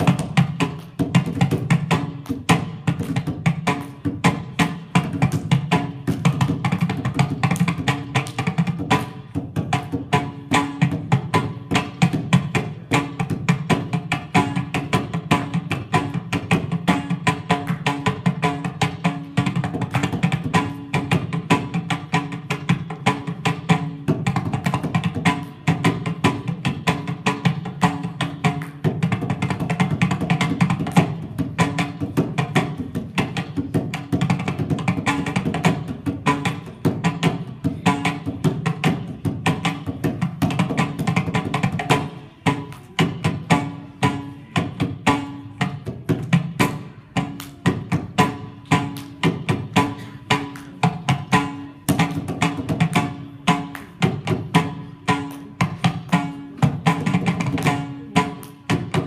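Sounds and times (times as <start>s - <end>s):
mridangam drumming: 0.0s - 59.0s.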